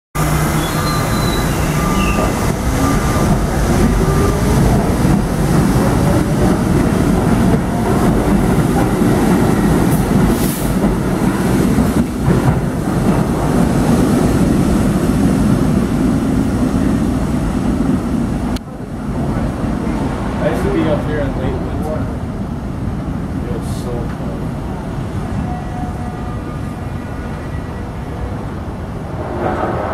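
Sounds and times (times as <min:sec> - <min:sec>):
subway train motor whine: 0:00.2 - 0:19.0
wheels rumbling on rails: 0:00.2 - 0:29.9.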